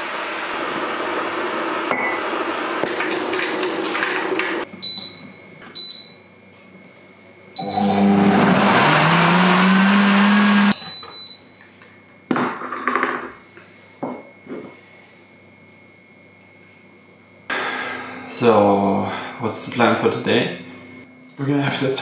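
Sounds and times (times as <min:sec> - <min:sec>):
blender motor running: 0:07.6 - 0:10.8
blender button beeps: 0:07.6 - 0:11.6.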